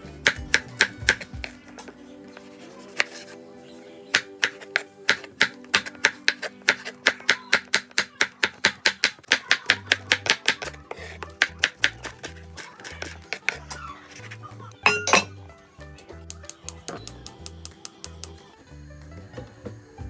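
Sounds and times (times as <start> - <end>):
background music: 0.0 - 20.0
knife chopping on wooden board: 0.2 - 1.6, 3.0 - 3.2, 4.1 - 13.7.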